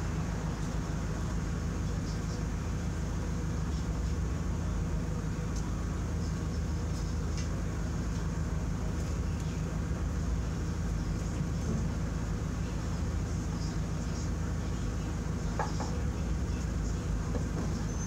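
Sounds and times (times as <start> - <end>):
low machine hum: 0.0 - 18.0.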